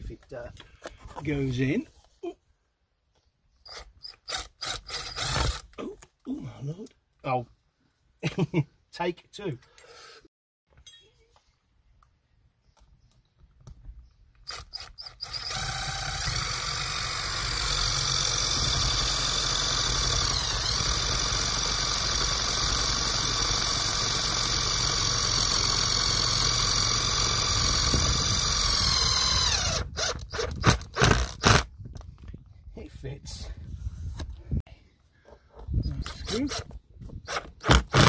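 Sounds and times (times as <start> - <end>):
drill driving screw into wood: 3.6 - 5.8, 14.4 - 31.7, 35.9 - 38.0.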